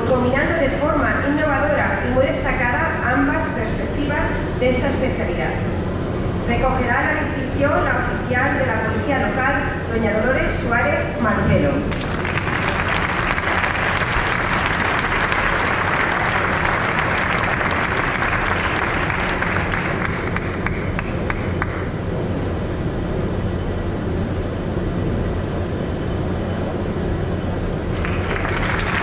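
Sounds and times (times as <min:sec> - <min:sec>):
hall background noise: 0:00.0 - 0:29.0
audience applauding: 0:11.9 - 0:21.8, 0:27.9 - 0:29.0.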